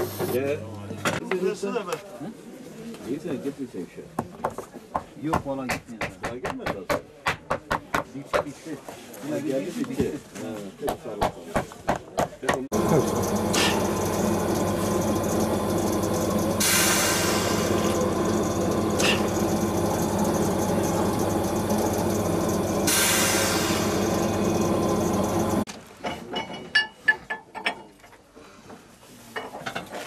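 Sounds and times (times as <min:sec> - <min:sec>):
machine humming and hissing: 0:12.7 - 0:25.7
loud hissing bursts: 0:16.6 - 0:18.2, 0:22.8 - 0:24.3.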